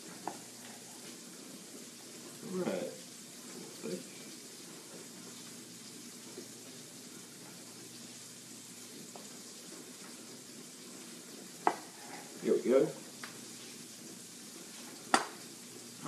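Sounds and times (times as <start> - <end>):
burgers sizzling in a pan: 0.0 - 16.0
knife tapping on wooden board: 11.6 - 11.9.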